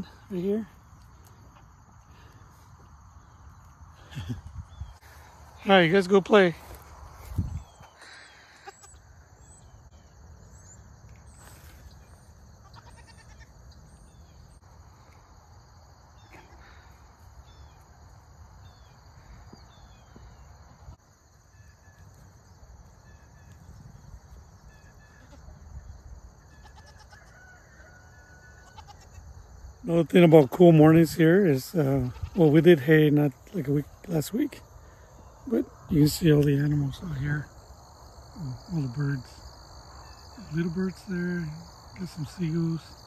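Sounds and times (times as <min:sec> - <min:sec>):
wind rumble on microphone: 0:04.1 - 0:05.2, 0:06.9 - 0:07.9
goats bleating: 0:08.5 - 0:09.0, 0:12.6 - 0:13.5.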